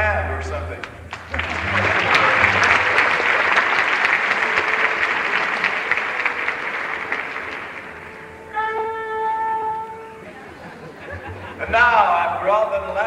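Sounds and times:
audience applauding and cheering: 0:00.8 - 0:08.7
held instrument note: 0:01.3 - 0:12.6.

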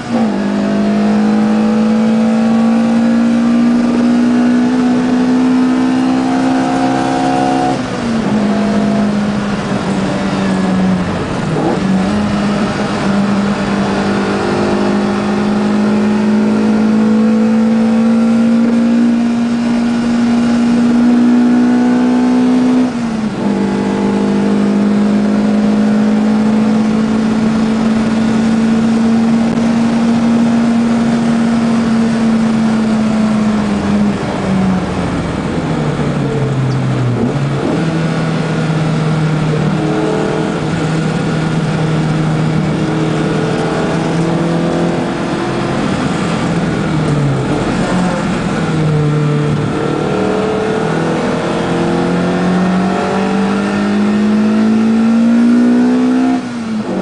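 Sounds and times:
racing car engine in cabin: 0:00.0 - 0:57.0
gear change: 0:35.2 - 0:57.0.

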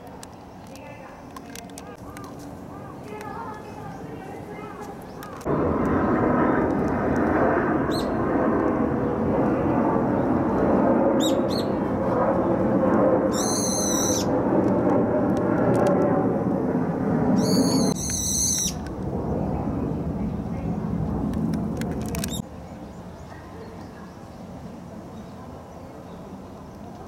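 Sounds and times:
jet airliner roar: 0:00.0 - 0:23.6
small birds chirping: 0:00.2 - 0:05.5
harsh bird call: 0:13.3 - 0:14.3.

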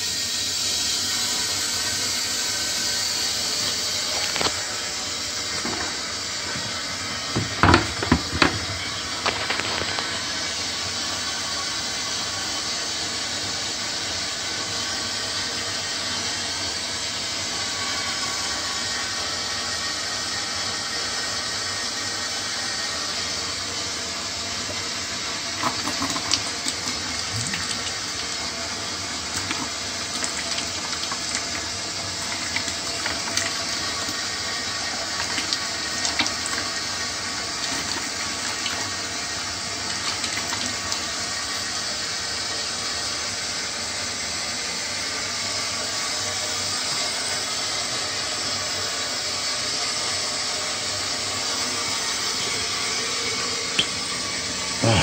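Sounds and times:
water hissing through pipes: 0:00.0 - 0:55.0
water splashing into bucket: 0:05.4 - 0:10.4, 0:24.6 - 0:41.3, 0:53.6 - 0:54.5.

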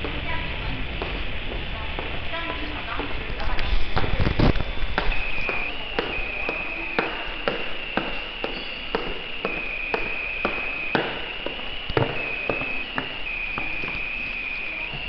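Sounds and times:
footsteps on tile floor: 0:00.0 - 0:15.0
high-pitched tone: 0:04.2 - 0:15.0.

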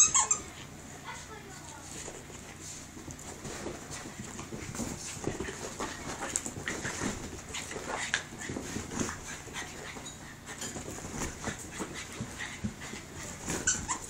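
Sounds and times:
puppy whimpering: 0:00.0 - 0:00.6, 0:13.4 - 0:14.0
puppy panting: 0:01.9 - 0:14.0.

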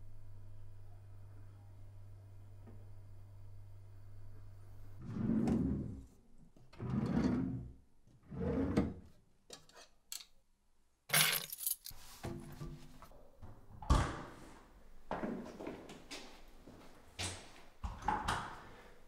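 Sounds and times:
drawers sliding open and shut: 0:05.0 - 0:06.1, 0:06.8 - 0:09.1.

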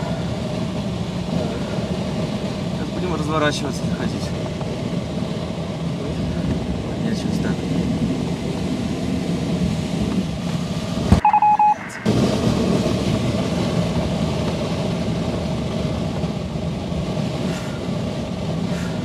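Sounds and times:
air rushing: 0:03.8 - 0:19.0
electronic beeps: 0:11.2 - 0:12.1.

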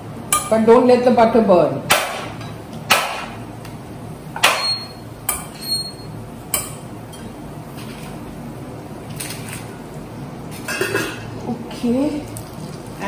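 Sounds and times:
metal utensils clinking on pans: 0:10.6 - 0:11.3.

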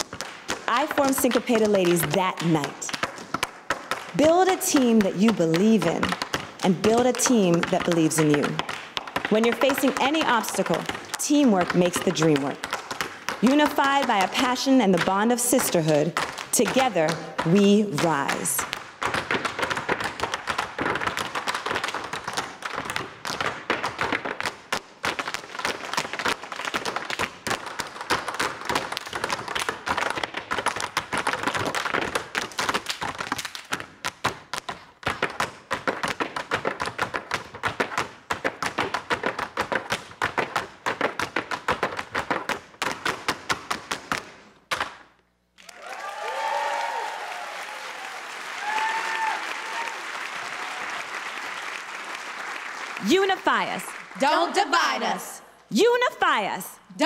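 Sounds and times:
tap shoes on wooden boards: 0:00.0 - 0:45.1
audience cheering with whoops: 0:45.6 - 0:51.3
audience applauding: 0:45.6 - 0:53.1.

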